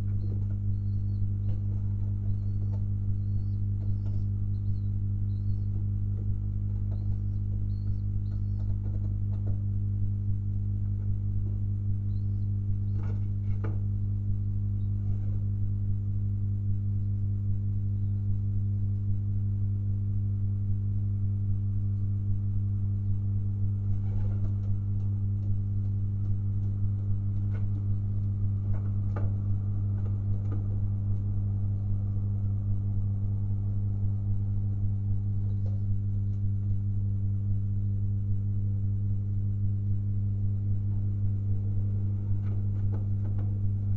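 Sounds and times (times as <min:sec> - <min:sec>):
pigeons cooing softly: 0:00.0 - 0:15.6, 0:22.8 - 0:38.0
electrical hum: 0:00.0 - 0:43.9.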